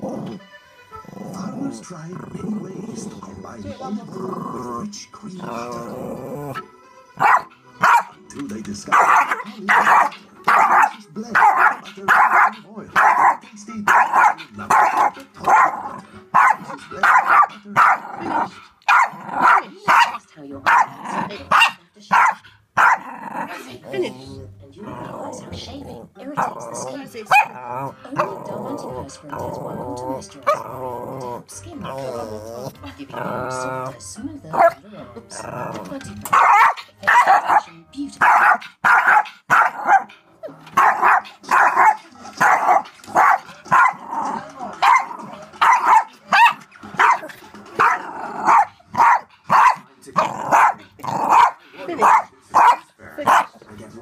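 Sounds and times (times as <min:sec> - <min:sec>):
small dog barking: 0:07.2 - 0:08.2, 0:08.9 - 0:23.1, 0:27.3 - 0:27.6, 0:36.3 - 0:40.1, 0:40.8 - 0:44.0, 0:44.8 - 0:53.6.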